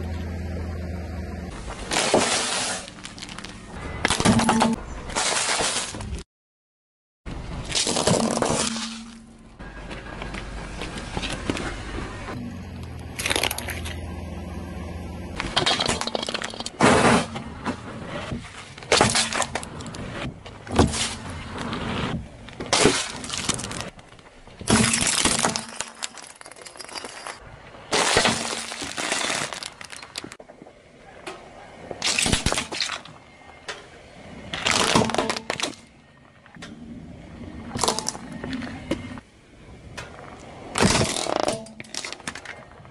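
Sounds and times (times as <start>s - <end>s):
tyre crushing plastic toys: 1.8s - 6.2s, 7.6s - 9.3s, 15.4s - 17.4s, 22.5s - 24.0s, 24.6s - 30.4s, 32.0s - 33.2s, 34.5s - 35.9s, 37.7s - 38.4s, 40.7s - 42.7s.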